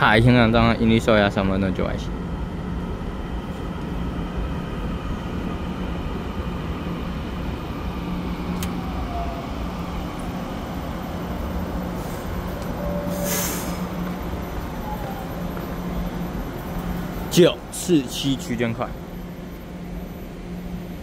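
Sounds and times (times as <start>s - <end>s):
train wheels and traction rumble: 0.0s - 21.0s.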